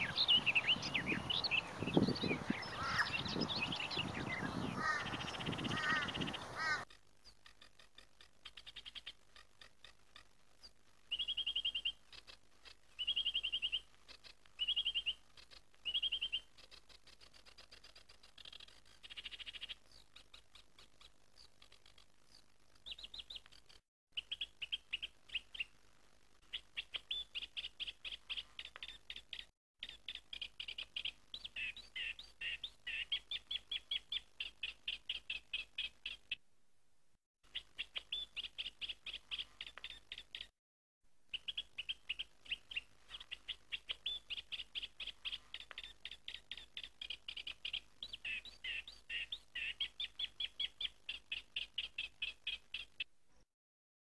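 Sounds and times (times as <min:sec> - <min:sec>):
birds chirping: 0:00.0 - 0:10.0, 0:10.6 - 0:17.1, 0:26.4 - 0:36.4, 0:37.5 - 0:40.5, 0:41.3 - 0:53.1.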